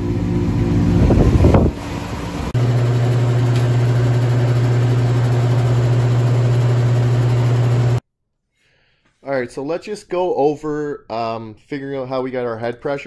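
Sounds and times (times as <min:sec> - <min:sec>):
refrigeration unit humming: 0:00.0 - 0:08.0.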